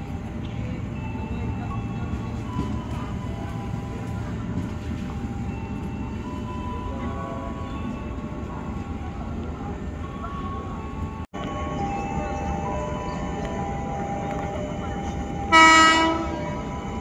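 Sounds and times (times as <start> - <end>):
electric train rumbling: 0.0 - 17.0.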